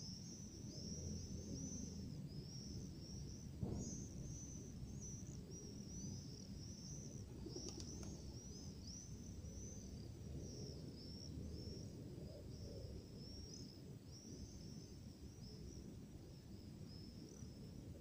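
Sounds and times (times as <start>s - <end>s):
small birds twittering: 0.0s - 17.7s
faint clicks: 7.6s - 8.2s.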